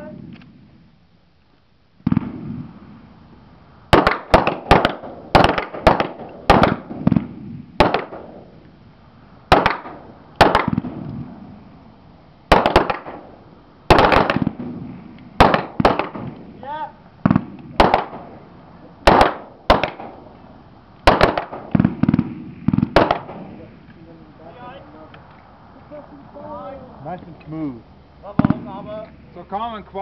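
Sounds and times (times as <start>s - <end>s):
rifle shots with echo: 2.0s - 2.8s, 3.9s - 8.5s, 9.5s - 11.1s, 12.5s - 16.6s, 17.2s - 18.4s, 19.0s - 20.3s, 21.0s - 23.7s, 28.3s - 29.0s.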